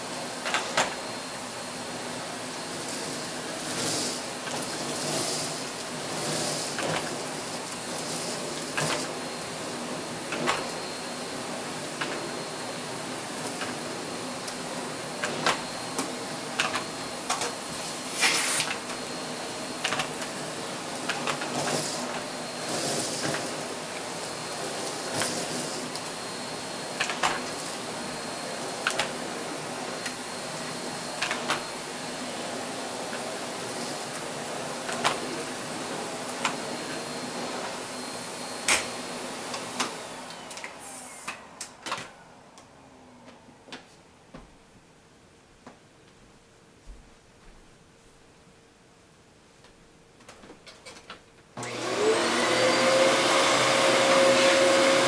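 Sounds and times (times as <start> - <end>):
vacuum cleaner on carpet: 0.0 - 42.4, 51.6 - 55.0
brief hissing rush: 18.1 - 18.7
vacuum motor winding down: 51.6 - 55.0.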